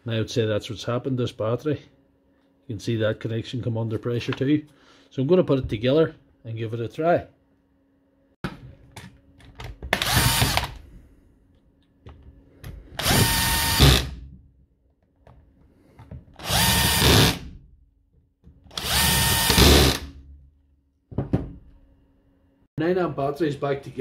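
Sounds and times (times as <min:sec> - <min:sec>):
power drill driving screws: 0:10.0 - 0:10.8, 0:13.0 - 0:14.2, 0:16.4 - 0:17.4, 0:18.7 - 0:20.1.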